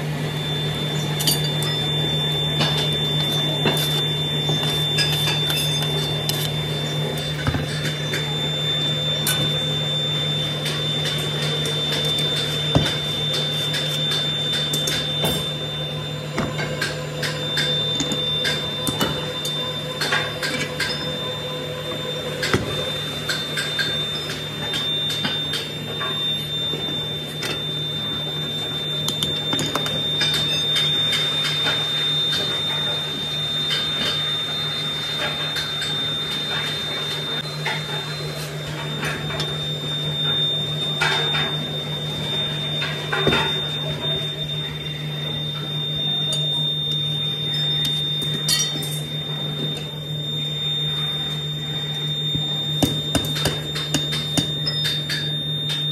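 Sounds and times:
faint high whine: 0.0s - 55.9s
low machine hum: 0.0s - 55.9s.

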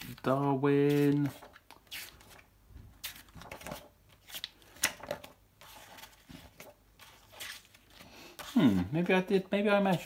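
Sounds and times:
book pages flipping: 0.0s - 10.0s.

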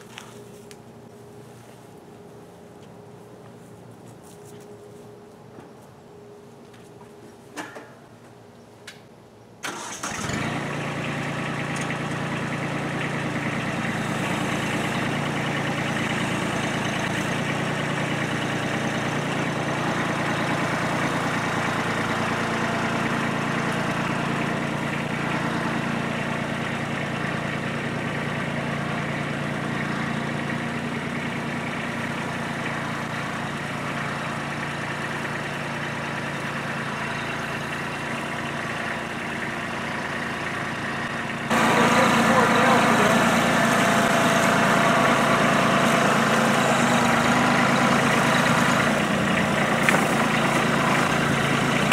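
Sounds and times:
tractor diesel engine running: 0.0s - 5.5s, 9.6s - 51.9s.

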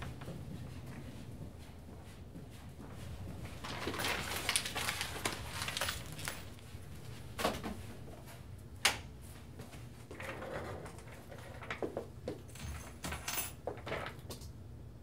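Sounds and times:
keys jangling: 5.6s - 6.6s.

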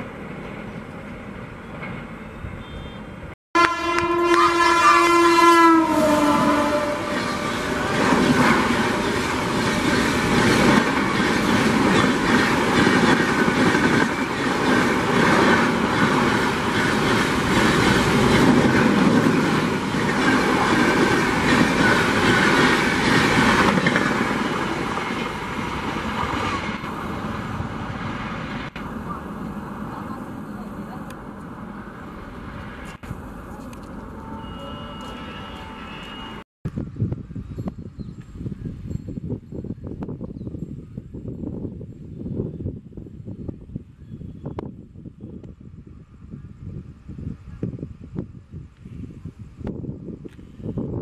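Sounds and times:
train horn: 2.5s - 8.1s, 33.7s - 36.4s
train wheels clickety-clack: 7.9s - 26.8s.

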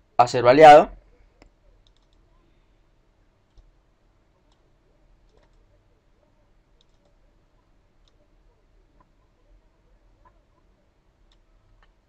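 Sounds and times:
computer mouse clicks: 1.4s - 2.3s, 3.4s - 3.8s, 5.2s - 5.7s, 6.7s - 8.2s, 10.2s - 12.0s.

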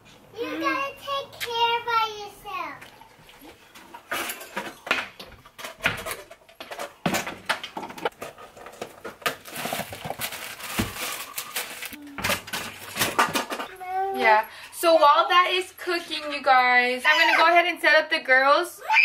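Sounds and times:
plastic packaging rustling: 8.0s - 13.7s.

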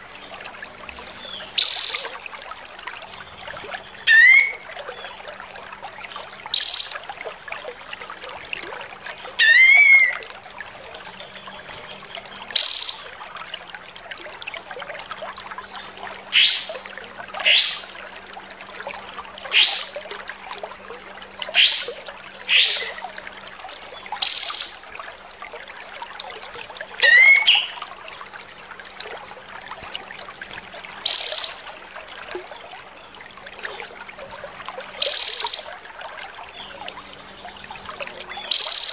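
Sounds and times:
bulbul whistled calls: 1.2s - 2.2s, 22.5s - 23.0s, 27.0s - 27.8s, 31.0s - 31.6s, 35.0s - 35.7s, 38.4s - 38.9s.

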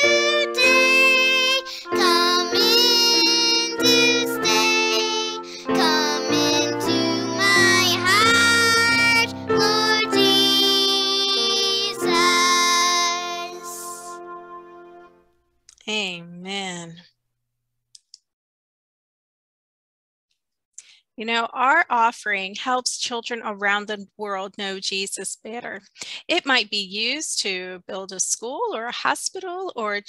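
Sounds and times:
children's worship song: 0.0s - 15.2s.

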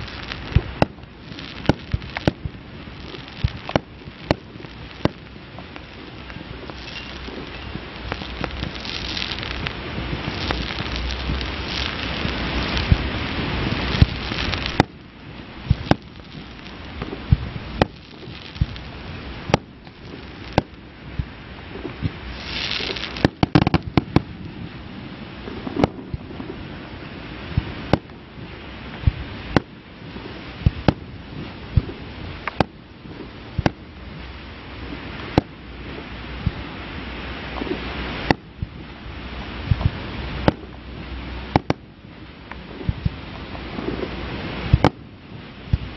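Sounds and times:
fireworks shells bursting: 0.0s - 24.4s
fireworks crackling: 0.0s - 45.9s
short hiss: 21.2s - 24.0s.

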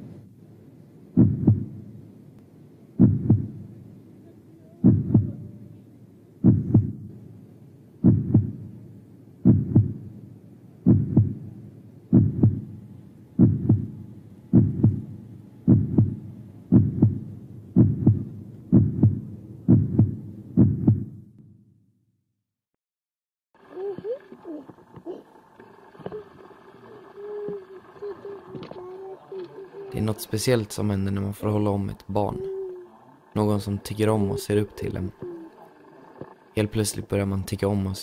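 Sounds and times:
heartbeat thumps: 1.2s - 2.0s, 3.0s - 3.8s, 4.8s - 5.5s, 6.4s - 7.1s, 8.0s - 8.8s, 9.4s - 10.2s, 10.8s - 12.8s, 13.4s - 21.4s.

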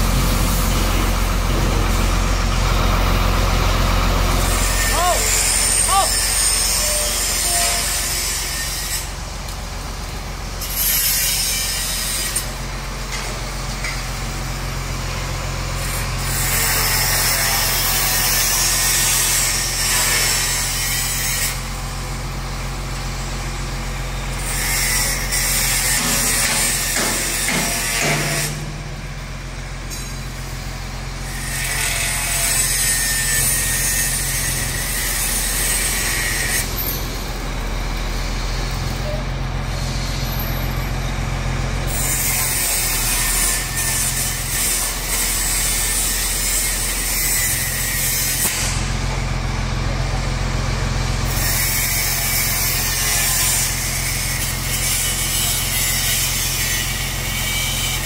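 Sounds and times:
truck engine humming: 0.0s - 7.0s, 34.6s - 42.0s.

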